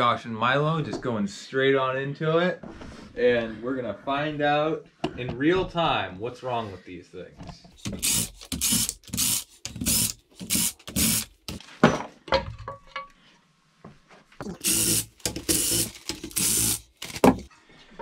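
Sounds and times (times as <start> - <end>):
cordless power driver bursts: 7.9 - 11.4, 14.6 - 17.5.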